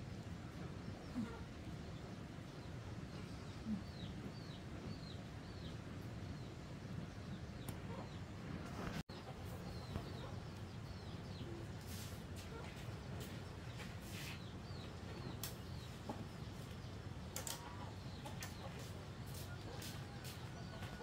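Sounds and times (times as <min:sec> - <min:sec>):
chickens clucking: 0:07.7 - 0:21.0.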